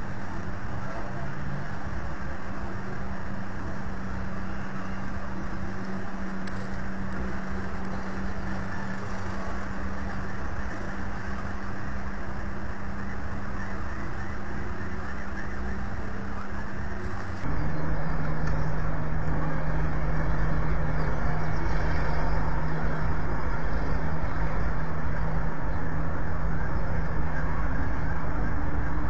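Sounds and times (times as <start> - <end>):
low electrical hum: 0.0 - 29.0
outdoor rumble and hiss: 0.0 - 29.0.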